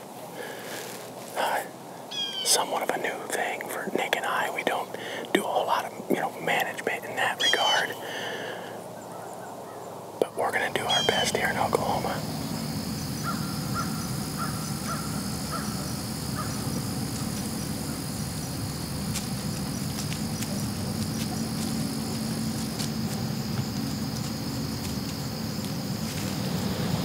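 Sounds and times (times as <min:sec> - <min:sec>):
insect chirps: 0:00.0 - 0:27.0
low steady hum: 0:02.8 - 0:27.0
pulsing insect trill: 0:04.0 - 0:27.0
high-pitched insect drone: 0:10.3 - 0:27.0.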